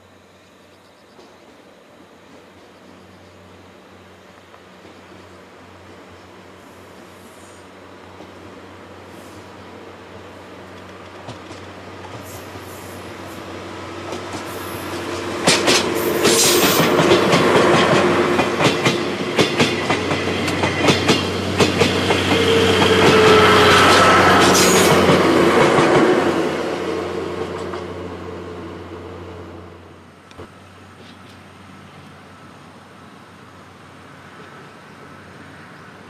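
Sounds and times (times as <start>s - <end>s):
diesel train passing: 0.0s - 36.0s
wheels clicking over rail joints: 10.7s - 12.4s, 14.0s - 26.1s.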